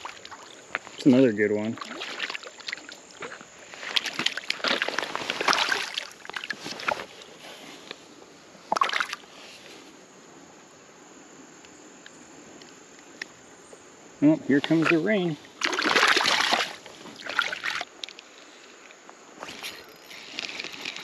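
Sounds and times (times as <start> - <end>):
fish splashing at water surface: 1.8 - 7.0, 8.7 - 9.2, 15.6 - 17.9.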